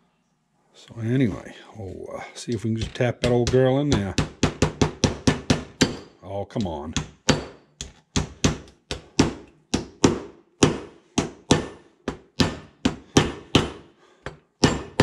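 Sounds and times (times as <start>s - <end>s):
hammer tapping metal: 2.4s - 15.0s.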